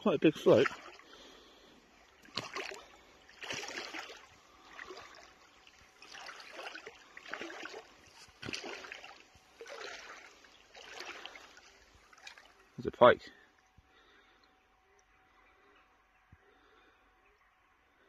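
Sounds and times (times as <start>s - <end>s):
person wading through water: 0.0s - 12.8s.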